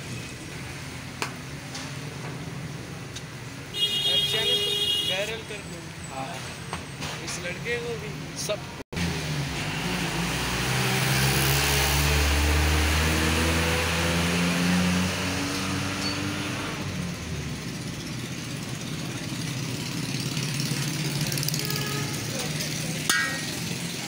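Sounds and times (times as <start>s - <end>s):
vehicle engine accelerating past: 9.0s - 17.3s.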